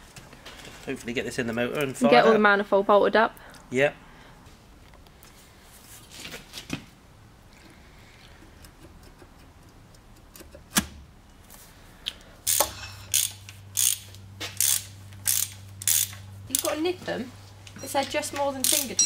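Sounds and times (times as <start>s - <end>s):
socket ratchet clicking: 12.5s - 16.8s, 18.6s - 19.0s.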